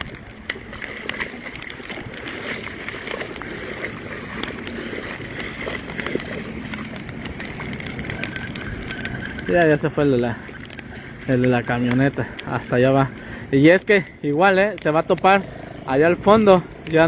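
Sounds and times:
raindrops tapping: 0.0s - 17.0s
heavy rain on flooded street: 0.8s - 13.7s.

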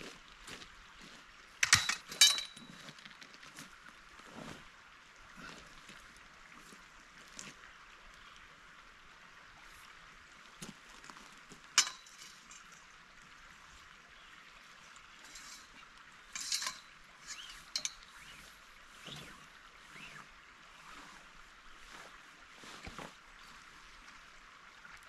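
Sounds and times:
metal tent poles clinking: 1.6s - 3.0s, 11.8s - 12.8s, 15.2s - 20.2s.

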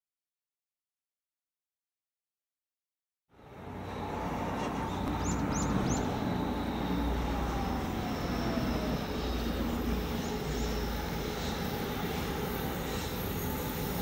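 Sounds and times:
faint falling whine: 3.4s - 14.0s.

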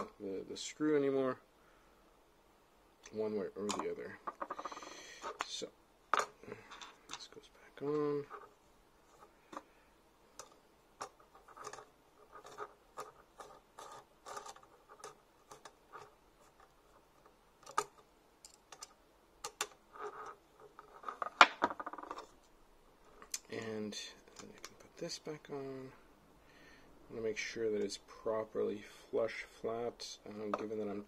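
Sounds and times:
parts clattering: 3.6s - 22.5s
small metal clicks and scratches: 10.3s - 22.3s
hex key turning screw: 10.4s - 16.1s.

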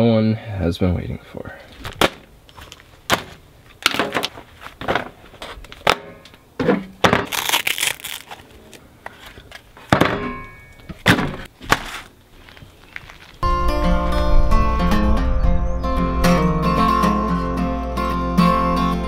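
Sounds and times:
hook-and-loop disc rustling rip: 7.1s - 9.3s.

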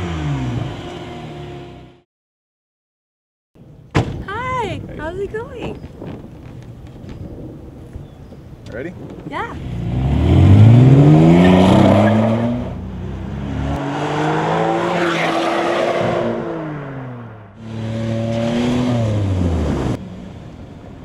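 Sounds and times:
car engine revving by: 9.6s - 20.0s.

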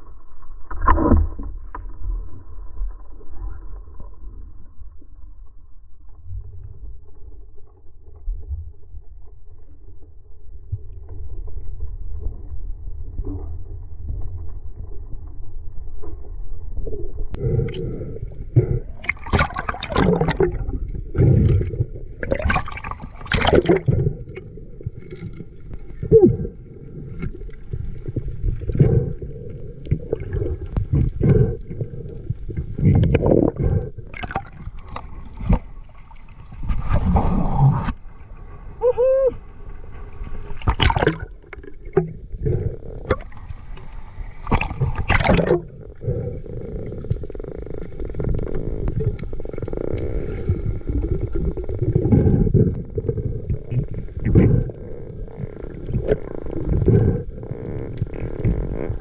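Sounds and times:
underwater gurgling and bubbling: 0.0s - 59.0s
water splash: 19.0s - 20.8s, 21.4s - 24.2s, 40.4s - 42.0s, 44.4s - 45.6s.

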